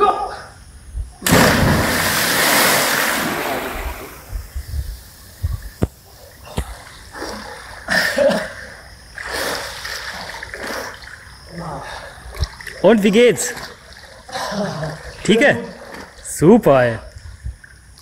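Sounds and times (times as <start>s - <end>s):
swimmer splashing: 1.2s - 4.4s
water splashing from a jump: 1.2s - 4.4s.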